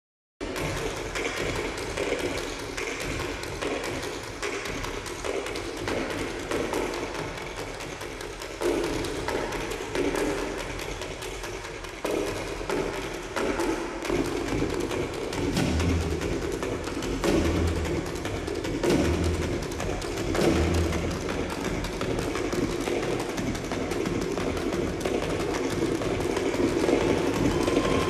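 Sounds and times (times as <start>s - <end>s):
wood-block-like knocks: 0.4s - 28.0s
music with busy percussion: 13.5s - 28.0s.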